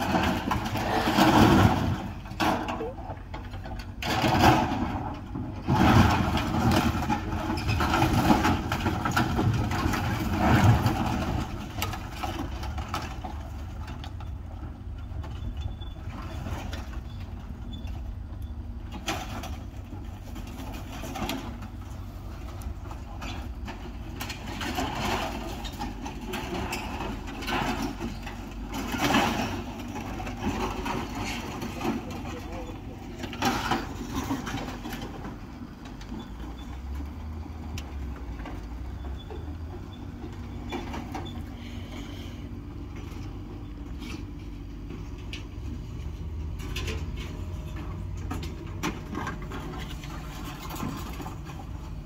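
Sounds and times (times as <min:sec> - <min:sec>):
metal sheeting and wood crashing: 0:00.0 - 0:02.9, 0:04.0 - 0:13.0
excavator engine running: 0:00.0 - 0:52.0.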